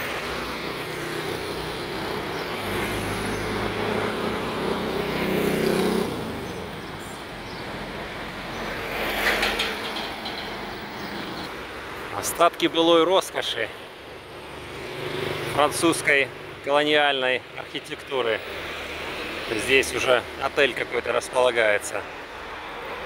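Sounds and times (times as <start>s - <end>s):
traffic noise: 0.0s - 23.0s
vehicle engine passing: 0.6s - 6.9s.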